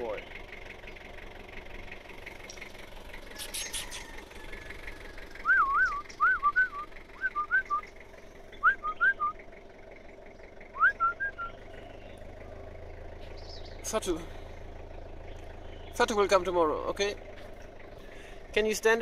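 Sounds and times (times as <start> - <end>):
faint engine hum: 0.0 - 19.0
person whistling: 5.4 - 7.8, 8.6 - 9.4, 10.8 - 11.6.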